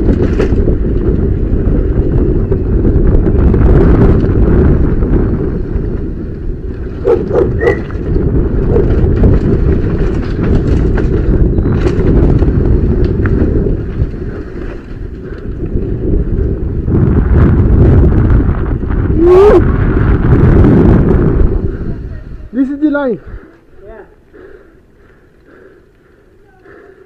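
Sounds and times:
mountain bike clattering over concrete: 0.0 - 4.9, 5.8 - 16.5
wind rushing over camera: 0.0 - 27.0.

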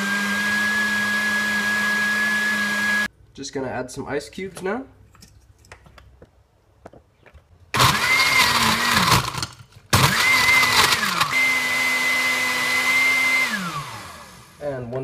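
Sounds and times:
blender crushing ice: 0.0 - 3.1, 7.8 - 14.6.

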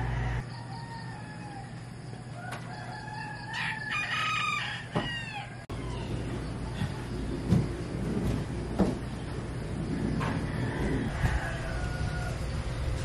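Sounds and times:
rooster crowing: 0.0 - 6.3, 10.0 - 12.8.

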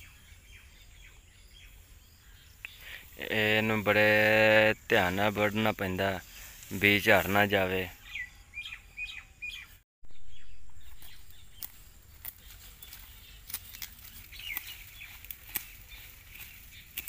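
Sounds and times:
small birds chirping: 0.0 - 17.0
sickle cutting stalks: 10.7 - 17.0
stalks rustling: 10.7 - 17.0.

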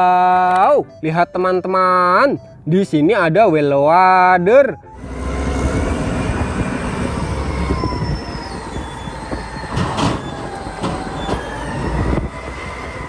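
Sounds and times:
high whining tones: 4.7 - 13.0
loader diesel engine under load: 4.8 - 13.0.

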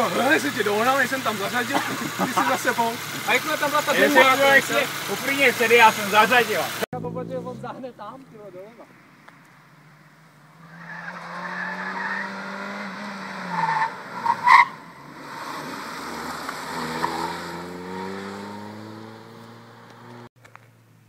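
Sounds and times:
car engine revving: 8.8 - 20.3
tyres squealing on concrete: 10.6 - 17.5.

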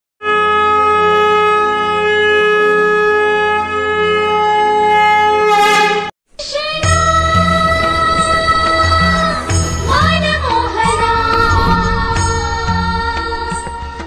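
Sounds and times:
conch shell blown: 0.2 - 6.1
rising sweep: 7.1 - 14.0.

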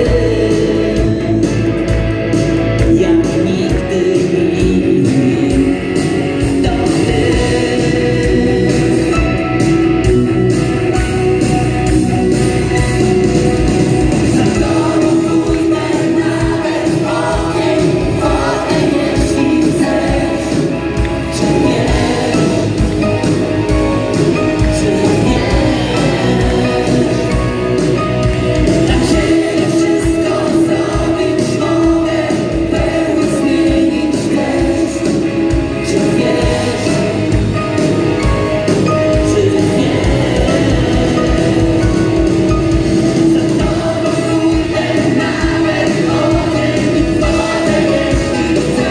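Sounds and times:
lead singer: 0.0 - 48.9
live rock band playing: 0.0 - 48.9
low drum beat: 10.0 - 48.9
backing voices: 10.4 - 48.9.

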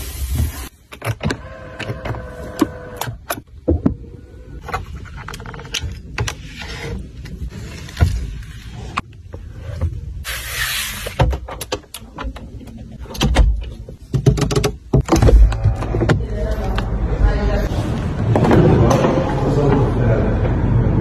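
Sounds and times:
clicks and knocks of car fittings: 11.3 - 16.2.

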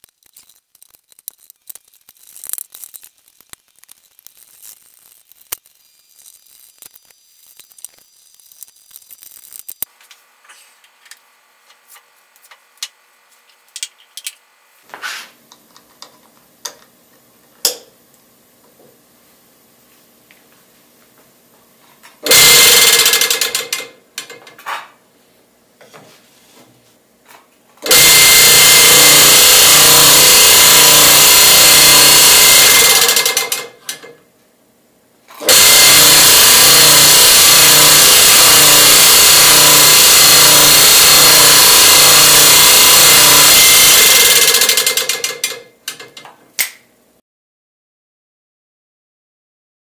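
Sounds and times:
scroll saw running: 22.2 - 24.0, 27.8 - 33.8, 35.4 - 45.6.

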